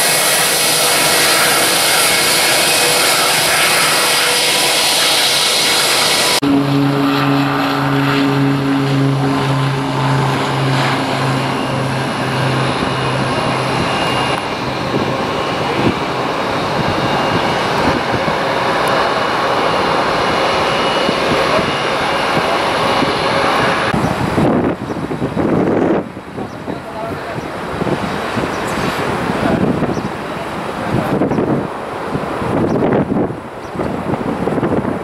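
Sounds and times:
aircraft engines passing: 0.0s - 35.0s
throbbing low hum: 6.4s - 15.9s.

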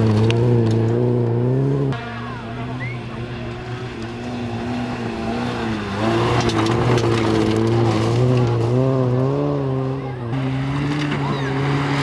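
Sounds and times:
rally car engine revving: 0.0s - 12.0s
gravel spattering under tyres: 5.5s - 9.2s.

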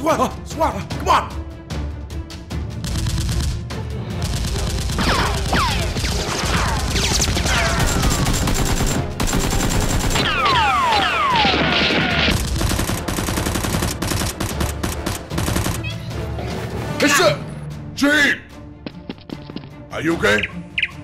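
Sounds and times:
rapid automatic gunfire: 2.8s - 3.6s, 4.2s - 10.5s, 11.3s - 15.9s.

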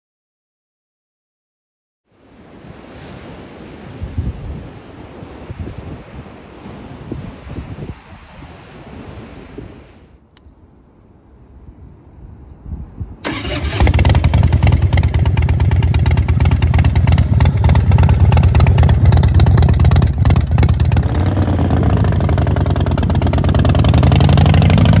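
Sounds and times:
motorcycle engine running loud: 13.3s - 25.0s.

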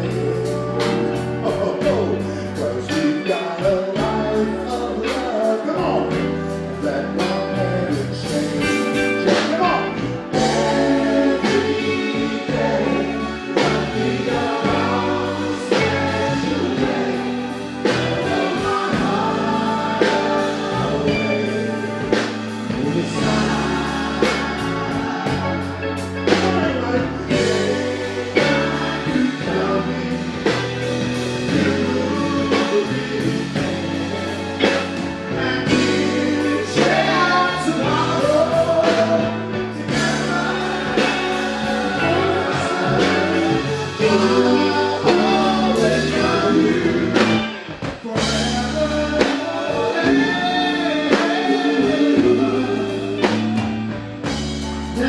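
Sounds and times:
men singing: 0.0s - 55.0s
soul-funk band playing: 0.0s - 55.0s.

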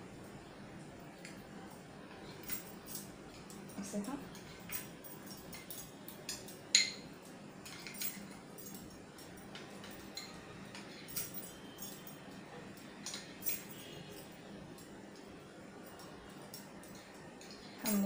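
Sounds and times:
spoon clinking against glass bowl: 4.4s - 12.3s.

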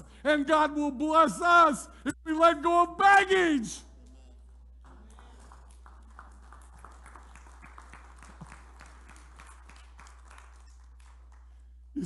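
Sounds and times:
low electrical hum: 0.0s - 12.0s
scattered clapping: 4.8s - 11.6s.

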